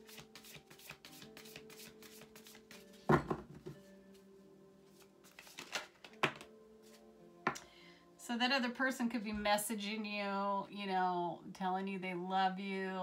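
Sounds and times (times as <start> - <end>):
cards being shuffled by hand: 0.0 - 2.9, 4.9 - 7.0
soft background music: 0.0 - 13.0.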